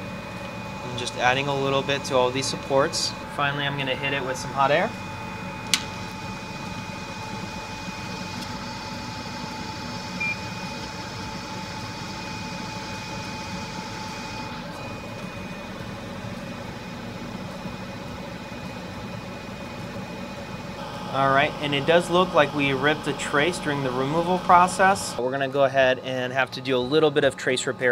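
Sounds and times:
hot air station hissing: 0.0s - 17.4s, 18.2s - 27.6s
short beep: 10.2s - 10.7s.

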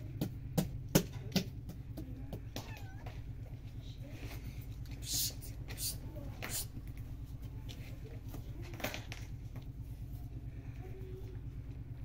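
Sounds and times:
dough slapping in a plastic basin: 0.0s - 2.7s
cat meowing: 2.6s - 3.2s.

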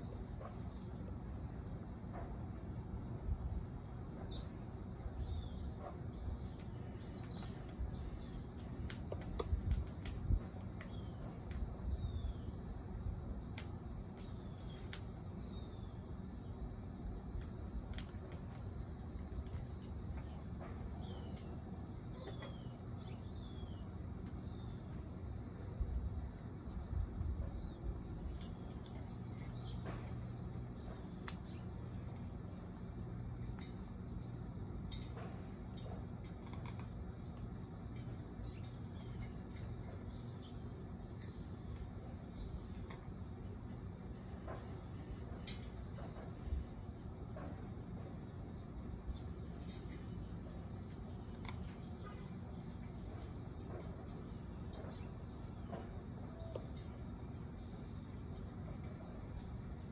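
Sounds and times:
low steady rumble: 0.0s - 59.9s
birds chirping: 4.1s - 17.2s, 17.9s - 43.7s
beak cracking food: 6.4s - 11.8s, 13.4s - 15.3s, 17.0s - 20.5s, 28.3s - 32.4s.

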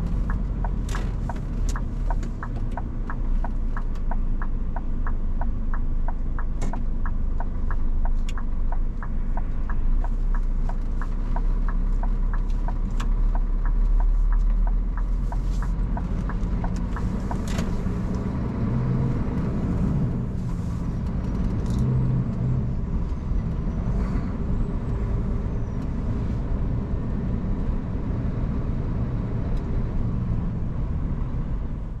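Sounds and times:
turn-signal relay ticking: 0.0s - 18.0s
diesel truck engine rumbling: 0.0s - 32.0s.

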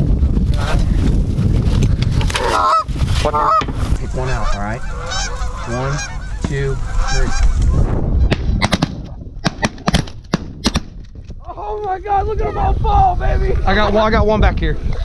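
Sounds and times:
geese honking: 2.4s - 8.4s.

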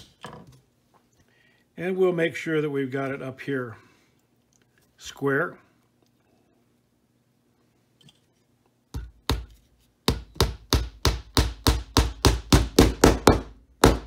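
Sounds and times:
hammer tapping nail into wood: 10.1s - 14.0s.

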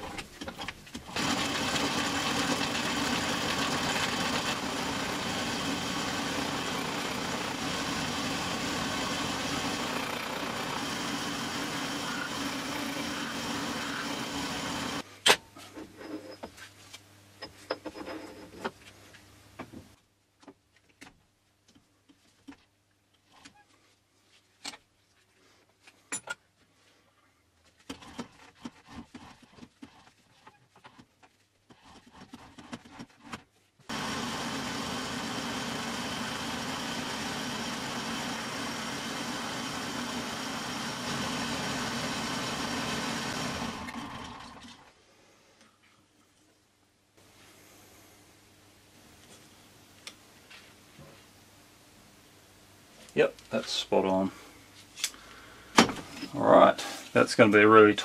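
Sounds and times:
metal lathe running: 1.1s - 15.0s, 33.9s - 44.6s.

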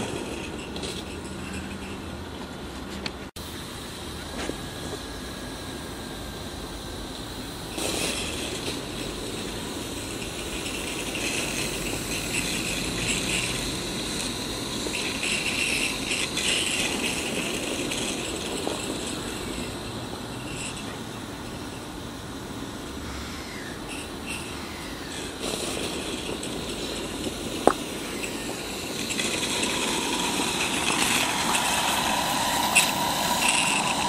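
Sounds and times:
steam hiss: 0.0s - 2.8s, 3.4s - 34.0s
mechanical rattle: 7.7s - 34.0s.

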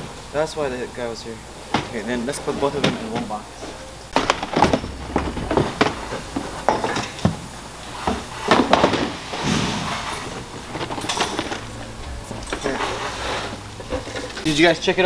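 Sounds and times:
cardboard rustling: 4.1s - 7.4s
plastic parts knocking and scraping: 4.1s - 7.4s.

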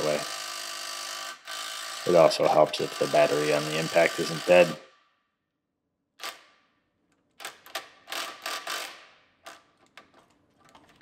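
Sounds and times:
ratchet metal clicks: 7.4s - 10.1s.

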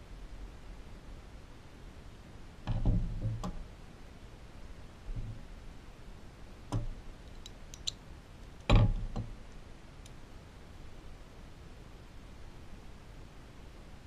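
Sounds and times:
ratchet and sockets clicking: 7.3s - 8.0s
metal clunk on wooden bench: 8.7s - 9.3s.

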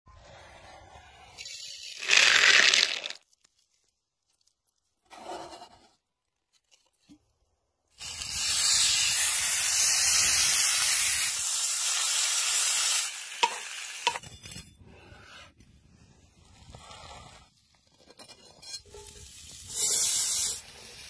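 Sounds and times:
steaks sizzling in a skillet: 8.1s - 14.2s.

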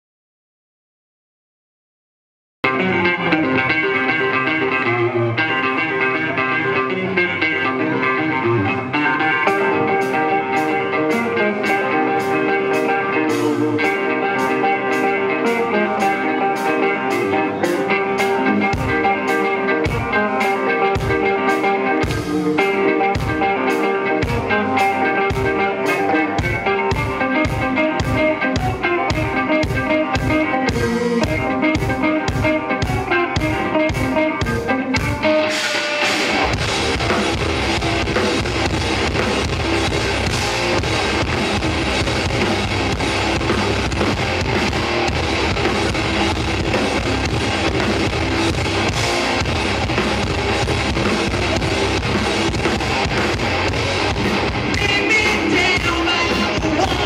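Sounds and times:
rock band playing loud: 2.6s - 57.0s
person singing: 54.7s - 57.0s.

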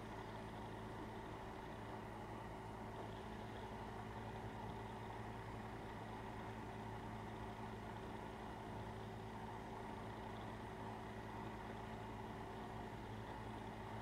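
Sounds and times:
steady low hum with hiss: 0.0s - 14.0s.

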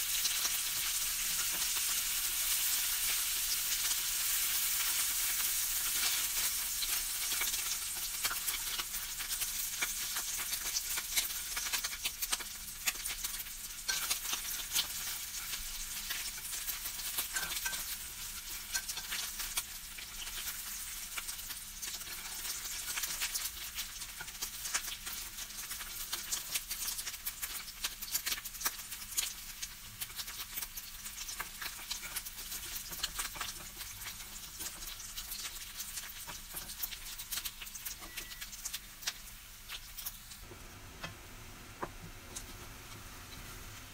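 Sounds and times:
bacon sizzling in a pan: 0.0s - 43.9s
chopsticks tapping and scraping: 31.4s - 40.1s.

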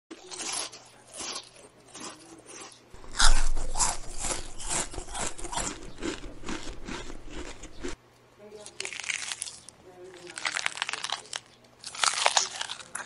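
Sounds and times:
rabbit crunching cabbage leaf: 0.1s - 13.0s.

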